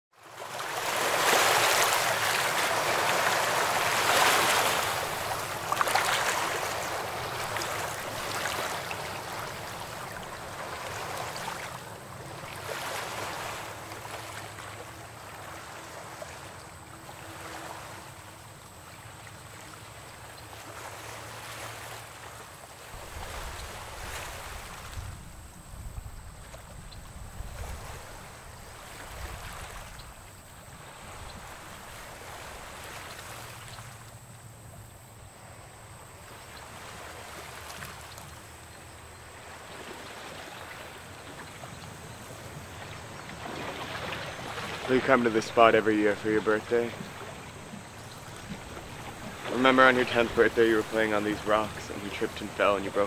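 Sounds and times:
water washing against rocky shore: 0.4 - 14.6, 43.3 - 53.0.

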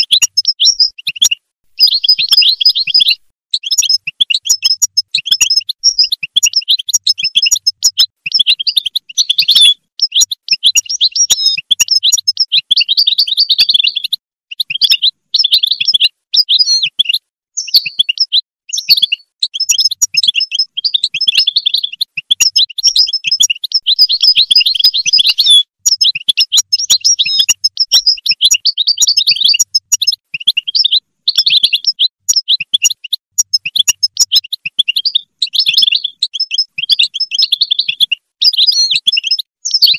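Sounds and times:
goldfinch singing tinkling twitter: 0.0 - 39.9.

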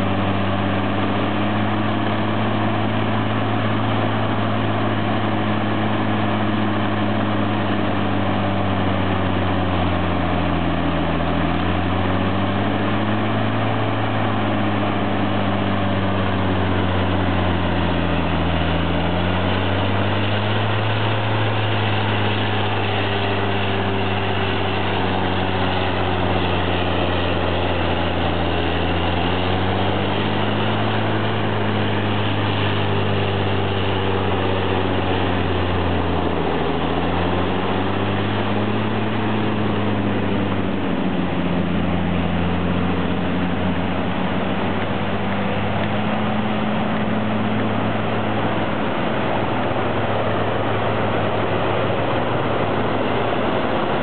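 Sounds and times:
diesel engine under heavy load: 0.0 - 54.0.

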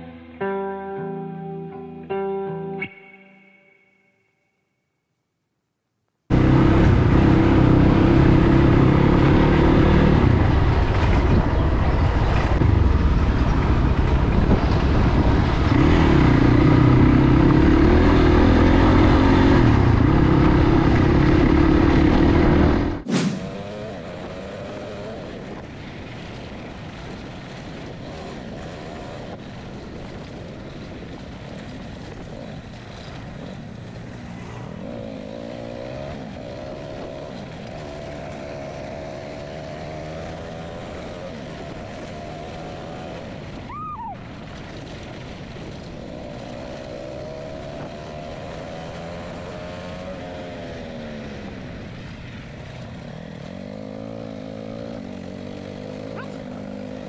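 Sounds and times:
vehicle engine revving: 6.3 - 25.8, 32.0 - 43.6, 44.7 - 57.0.

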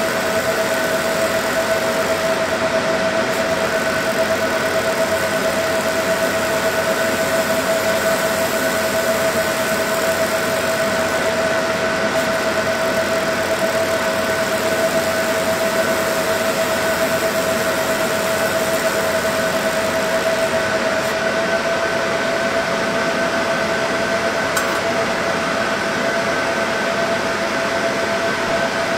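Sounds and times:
laser engraving machine hissing: 0.0 - 22.7
high-pitched steady whine: 0.0 - 28.9.

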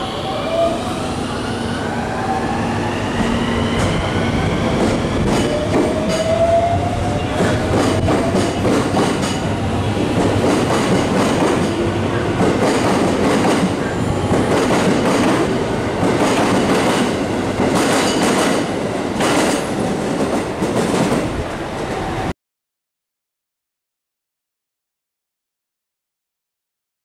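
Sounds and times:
electric train pulling out: 0.0 - 17.7.

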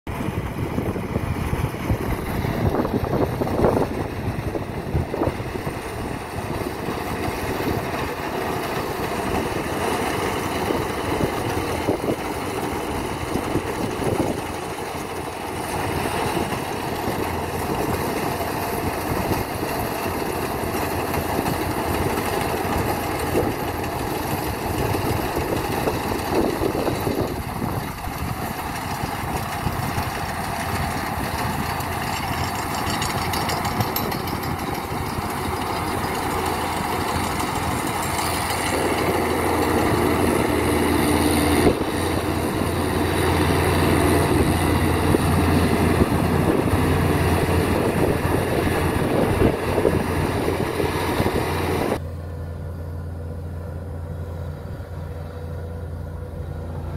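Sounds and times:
combine harvester running: 0.1 - 56.9.

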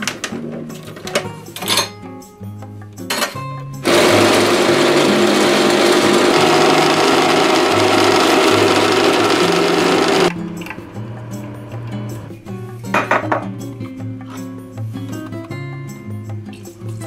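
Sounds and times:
espresso machine pump buzzing: 3.8 - 10.3.

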